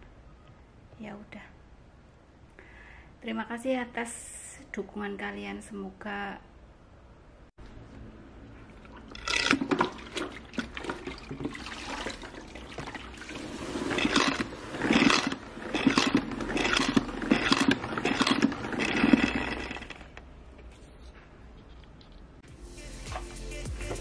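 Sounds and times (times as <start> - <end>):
spin mop pumping and spinning: 8.7 - 20.2.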